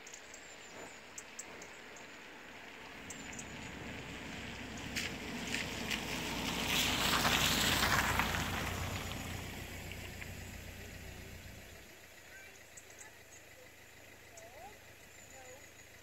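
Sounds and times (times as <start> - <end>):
vehicle passing by: 2.5 - 12.2.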